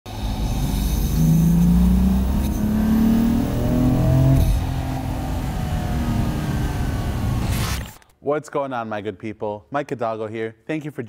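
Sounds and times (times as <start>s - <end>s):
car engine accelerating: 0.1s - 8.0s.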